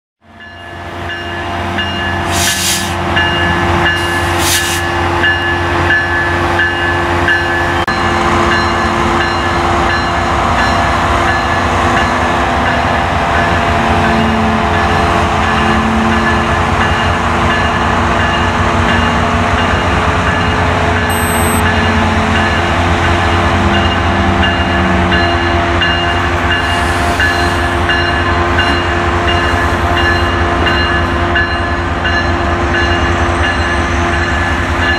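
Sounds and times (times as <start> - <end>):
diesel locomotive engine drone: 0.2 - 34.9
steady tones: 21.1 - 21.7.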